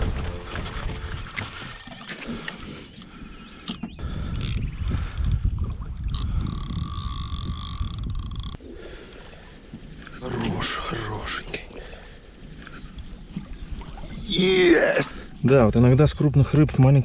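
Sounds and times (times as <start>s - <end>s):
fishing reel clicking and whirring: 3.6s - 5.4s, 6.1s - 8.6s.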